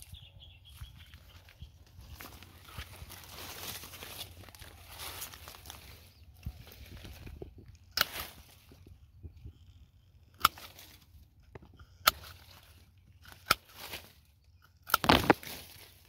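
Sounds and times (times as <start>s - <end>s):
leaves rustling: 0.7s - 8.9s, 12.1s - 14.3s, 14.9s - 16.0s
pruning shears snipping: 7.8s - 8.8s, 10.3s - 11.2s, 11.8s - 16.0s.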